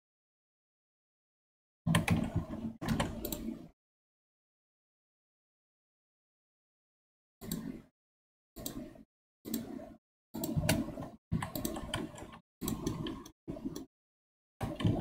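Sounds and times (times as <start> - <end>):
keyboard and mouse clicking: 1.9 - 3.6, 7.4 - 7.7, 8.6 - 8.9, 9.5 - 9.8, 10.4 - 13.9, 14.6 - 15.0.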